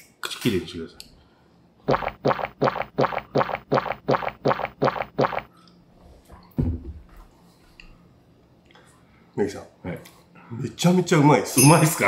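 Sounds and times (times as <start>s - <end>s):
rapid gulping swallows: 1.9s - 5.8s.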